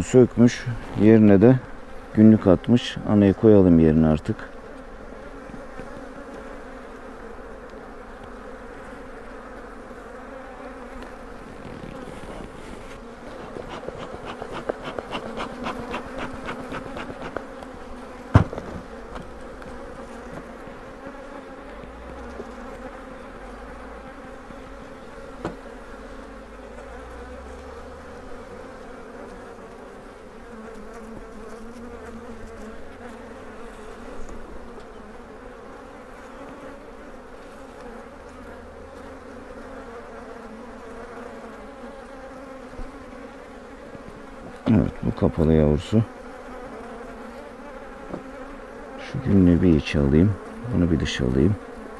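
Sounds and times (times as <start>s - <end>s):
honeybees buzzing: 0.0s - 51.9s
quick run of clicks: 13.4s - 17.5s
sharp knock: 18.3s - 18.9s.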